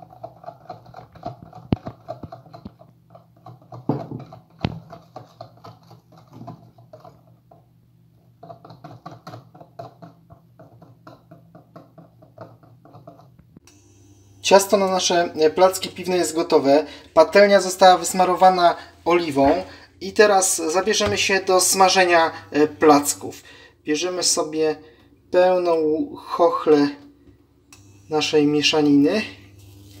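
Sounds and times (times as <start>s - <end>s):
whisk beating batter in bowl: 0.0s - 7.6s.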